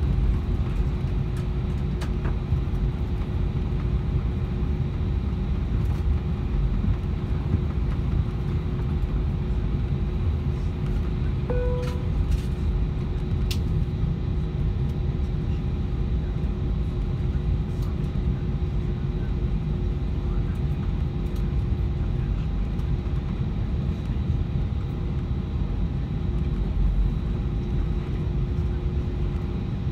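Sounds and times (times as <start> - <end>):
aircraft cabin rumble: 0.0 - 29.9
faint steady hum: 11.4 - 12.7
single chime: 11.5 - 12.3.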